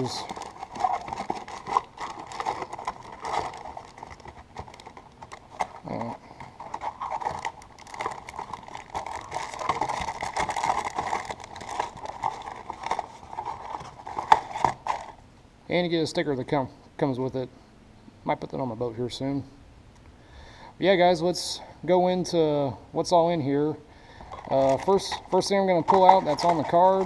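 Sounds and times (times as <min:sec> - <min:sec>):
plastic lure packages crinkling: 0:00.0 - 0:15.2, 0:24.1 - 0:27.0.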